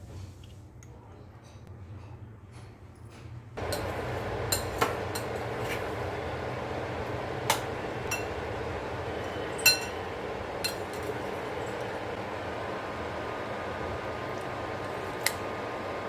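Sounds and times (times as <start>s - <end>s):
steady background noise: 0.6s - 16.0s
utensil clinking against a dish: 3.6s - 5.8s, 7.5s - 8.4s, 9.5s - 11.1s.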